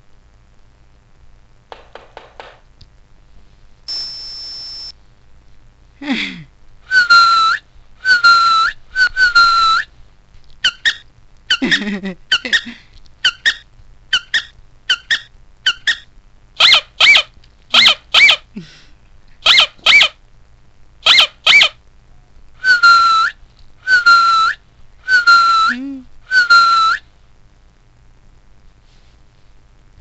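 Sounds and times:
recorded dog yips: 0:10.6 - 0:11.7, 0:16.6 - 0:18.4, 0:19.4 - 0:20.2, 0:21.0 - 0:21.8.

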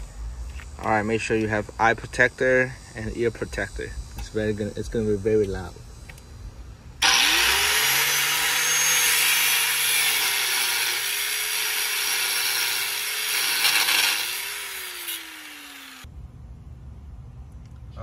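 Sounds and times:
angle grinder cutting steel: 0:07.0 - 0:16.1
grinder winding down whine: 0:07.0 - 0:16.1.

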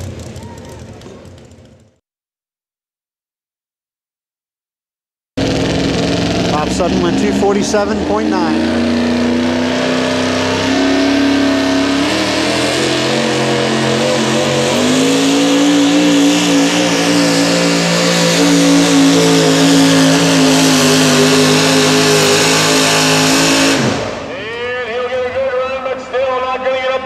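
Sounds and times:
truck engine at full throttle: 0:00.0 - 0:02.0, 0:05.4 - 0:26.9.

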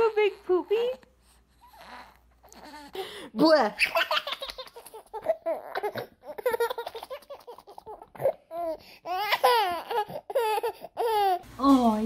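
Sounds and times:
baby giggling and babbling: 0:03.8 - 0:11.4.

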